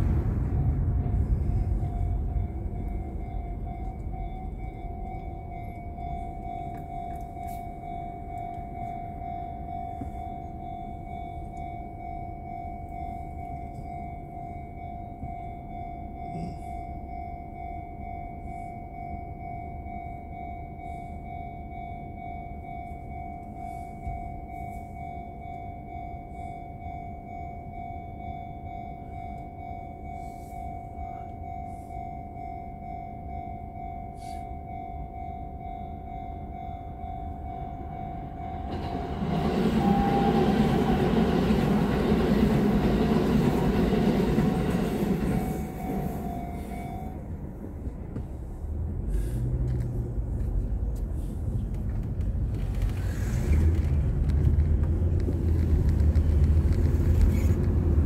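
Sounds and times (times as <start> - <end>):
low rumble: 0.0 - 8.4, 35.6 - 58.0.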